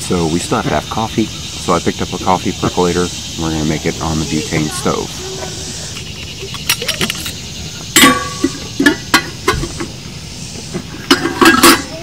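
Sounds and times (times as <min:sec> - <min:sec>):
metal parts clinking against pot: 0:06.4 - 0:07.4, 0:08.0 - 0:09.6, 0:11.0 - 0:12.0.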